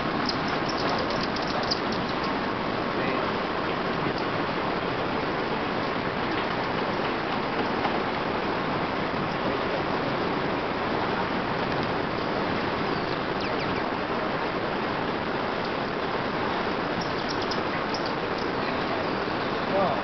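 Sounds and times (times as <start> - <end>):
water rushing: 0.0 - 20.0
small birds chirping: 0.1 - 2.4, 12.2 - 13.9, 16.9 - 20.0.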